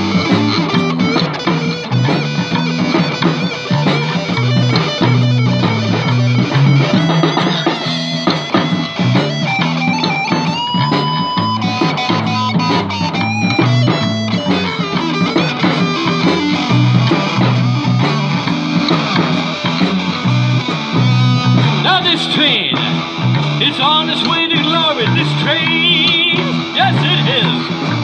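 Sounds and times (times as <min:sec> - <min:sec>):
drum kit: 0:00.0 - 0:28.0
electric bass: 0:00.0 - 0:28.0
electric guitar: 0:00.0 - 0:28.0.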